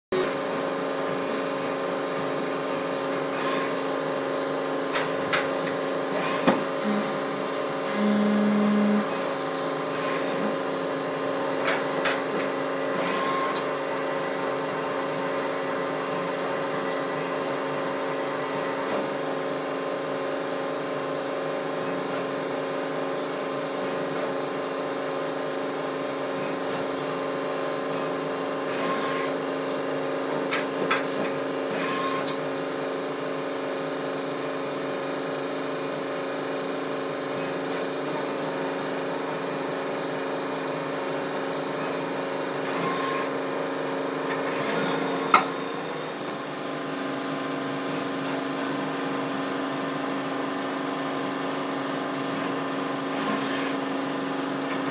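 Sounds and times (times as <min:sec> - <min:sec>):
low machine tone: 0:00.1 - 0:04.9, 0:06.1 - 0:11.2, 0:44.7 - 0:48.1.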